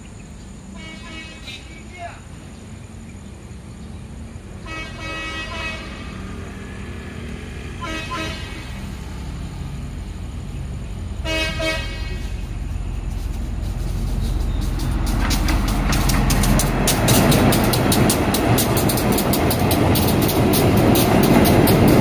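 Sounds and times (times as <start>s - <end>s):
train rumble: 0.0s - 22.0s
train horn blasts: 0.7s - 1.6s, 4.6s - 6.4s, 7.7s - 8.8s, 11.2s - 12.5s
train wheel clicks: 13.1s - 22.0s.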